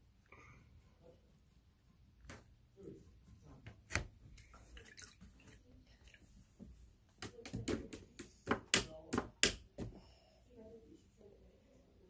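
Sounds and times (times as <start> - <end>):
painting supplies clicking and tapping: 7.1 - 10.0.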